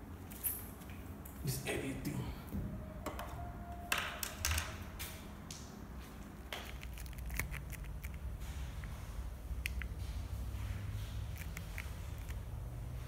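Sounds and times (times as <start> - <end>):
steady low hum: 0.0 - 13.0
handling clicks and rustles: 6.5 - 9.0.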